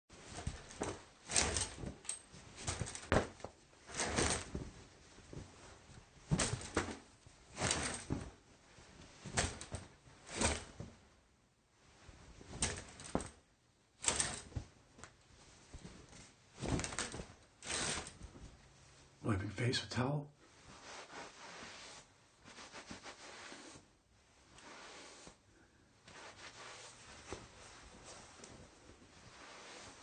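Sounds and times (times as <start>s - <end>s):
shower curtain drawn along rod: 0.2s - 4.7s, 6.3s - 8.4s, 9.2s - 10.8s, 12.5s - 13.4s, 14.0s - 14.6s, 16.6s - 18.4s, 20.6s - 25.4s, 26.1s - 30.0s
towel rubbing body: 20.5s - 30.0s.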